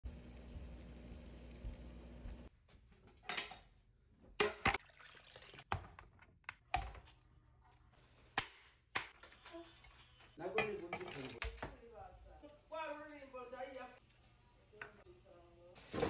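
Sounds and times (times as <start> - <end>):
water sloshing in pot: 4.5 - 5.8, 10.5 - 11.5.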